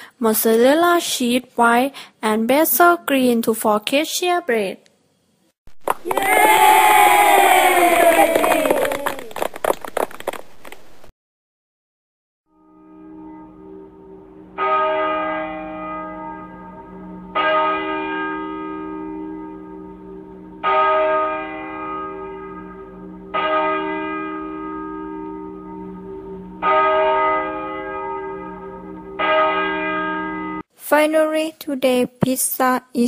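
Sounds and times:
low hum: 0:12.6 - 0:17.4.

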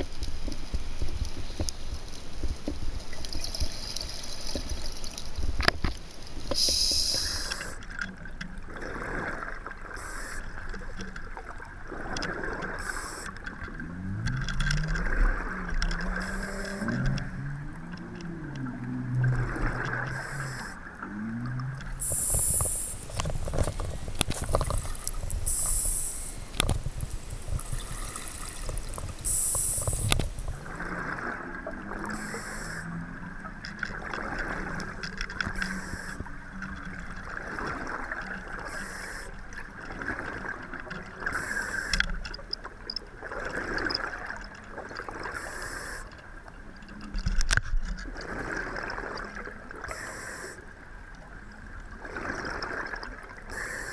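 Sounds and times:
low underwater hum: 0:00.0 - 0:53.9
regulator hissing inhalations: 0:06.5 - 0:07.8, 0:10.0 - 0:10.5, 0:22.0 - 0:24.1, 0:25.4 - 0:26.6, 0:29.2 - 0:30.3, 0:35.6 - 0:36.2, 0:45.4 - 0:46.1, 0:53.5 - 0:53.9
bubbling gurgling exhalations: 0:14.2 - 0:32.9.

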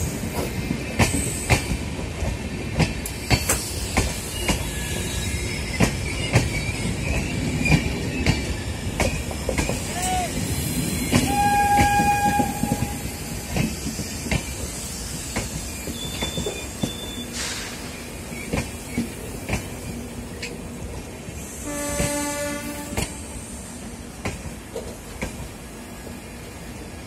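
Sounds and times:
train wheels knocking on rail joints: 0:00.1 - 0:04.8, 0:05.7 - 0:09.9, 0:11.0 - 0:17.1, 0:24.2 - 0:25.6
train horn: 0:11.2 - 0:13.2, 0:21.6 - 0:23.3.

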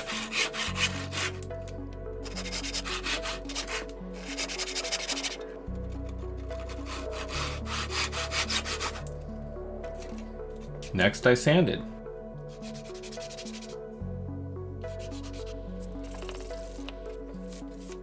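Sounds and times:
hand saw cutting wood: 0:00.0 - 0:01.4, 0:02.2 - 0:05.4, 0:06.6 - 0:09.1.

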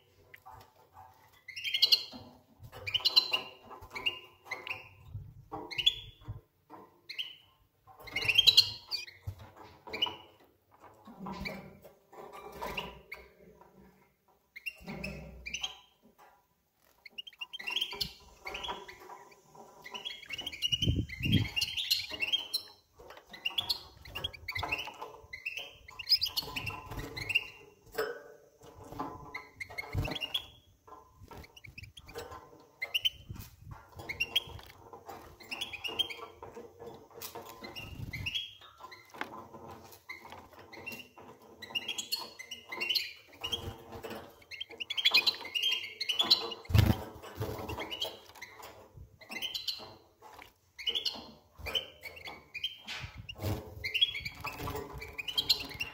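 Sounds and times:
goldfinches chirping: 0:01.5 - 0:02.2, 0:17.0 - 0:27.9, 0:50.8 - 0:55.9.

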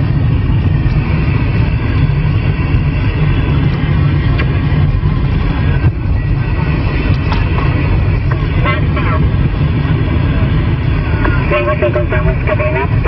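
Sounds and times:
low road noise rumble: 0:00.0 - 0:13.0
radio static and hiss: 0:07.4 - 0:13.0.

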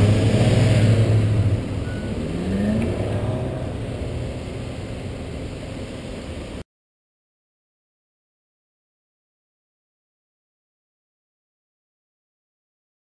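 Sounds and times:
car engine accelerating: 0:00.0 - 0:06.6
traffic noise: 0:00.0 - 0:06.6.

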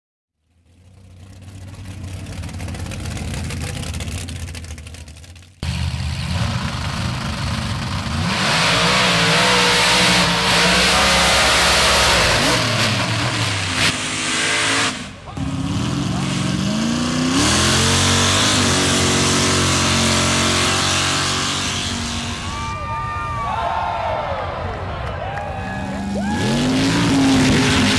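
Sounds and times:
steady engine sound: 0:00.4 - 0:22.7
truck engine revving: 0:00.6 - 0:22.7, 0:25.8 - 0:27.9.

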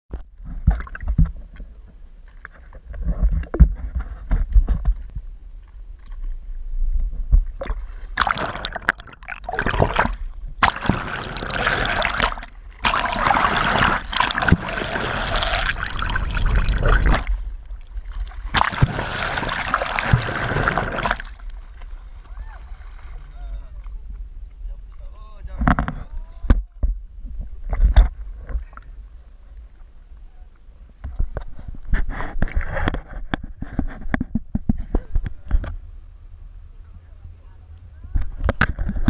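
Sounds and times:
water sloshing and gurgling: 0:00.1 - 0:24.4.

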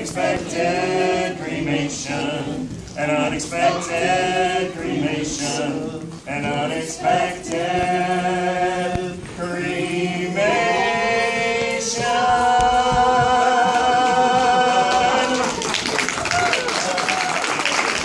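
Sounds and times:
group singing a cappella: 0:00.0 - 0:15.7
applause: 0:14.9 - 0:18.0.

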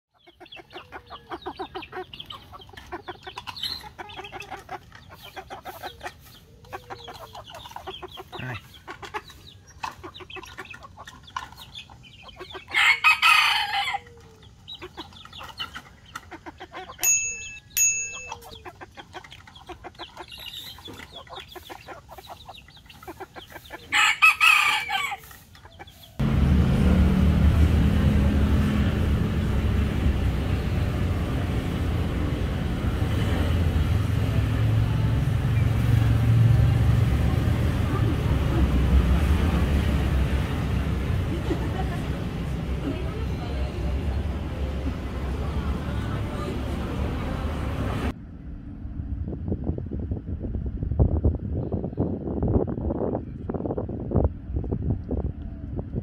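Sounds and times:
chickens clucking: 0:00.1 - 0:26.2
rooster crowing: 0:12.7 - 0:14.1, 0:23.9 - 0:25.2.

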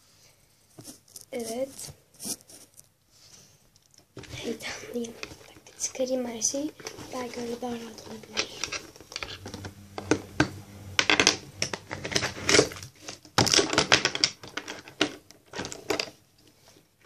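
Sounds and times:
makeup items clicking and clattering: 0:11.6 - 0:16.2.

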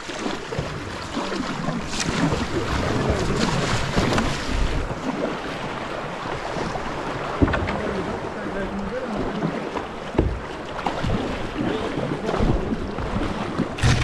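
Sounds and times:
kayak paddle splashing: 0:00.0 - 0:14.0.

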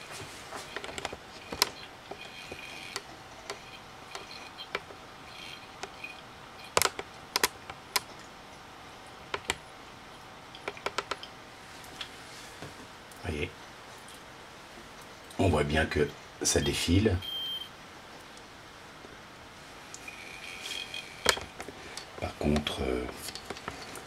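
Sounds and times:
hard drive faint whine: 0:00.0 - 0:24.0
hard drive sharp clicks: 0:00.6 - 0:08.3, 0:09.3 - 0:09.7, 0:10.5 - 0:11.4.

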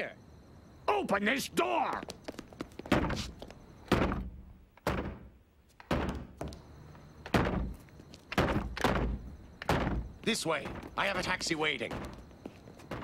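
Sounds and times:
heavy thuds on wooden door: 0:07.3 - 0:07.8, 0:08.4 - 0:11.1.

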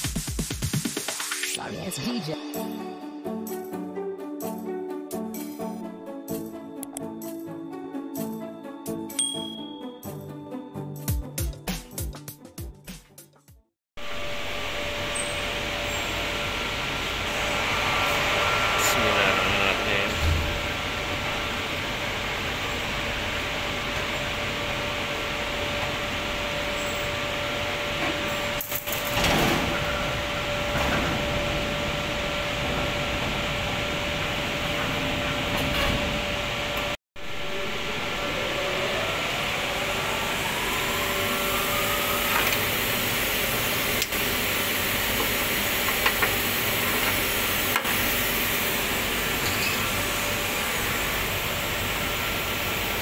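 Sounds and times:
fan motor whine: 0:14.0 - 0:53.0
furnace machinery humming: 0:14.0 - 0:53.0.

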